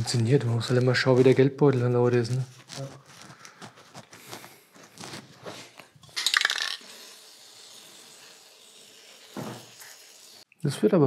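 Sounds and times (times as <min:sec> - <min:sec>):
small metal parts clicking: 0:06.1 - 0:06.8.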